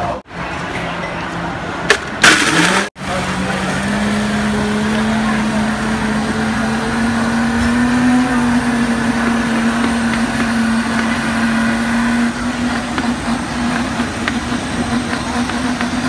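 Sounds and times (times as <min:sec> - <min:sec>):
noisy background: 0:00.0 - 0:16.0.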